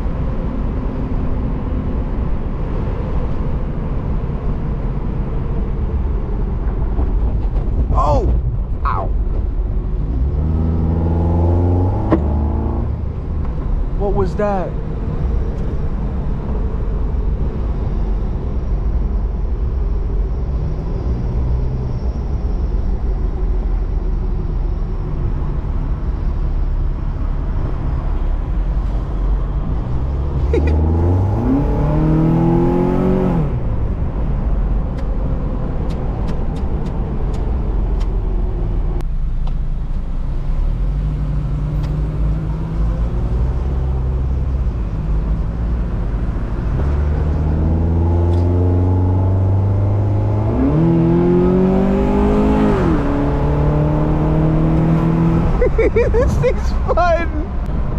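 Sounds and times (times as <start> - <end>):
road noise: 0.0 - 57.9
car engine revving: 9.8 - 13.3, 29.8 - 33.7, 40.7 - 57.7.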